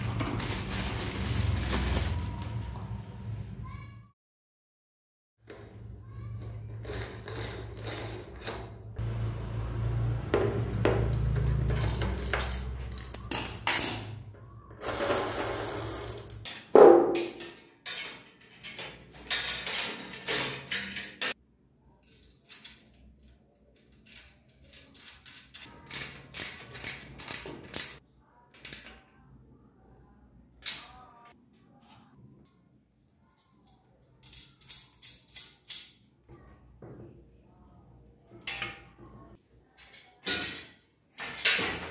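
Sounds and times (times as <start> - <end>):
bicycle parts clicking and knocking: 10.4 - 21.4, 22.0 - 29.2, 33.4 - 36.2, 38.3 - 41.9.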